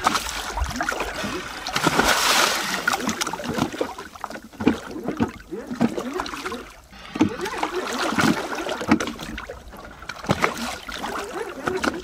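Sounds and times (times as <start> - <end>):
rush of water: 0.0 - 12.0
water splashing and sloshing: 0.0 - 12.0.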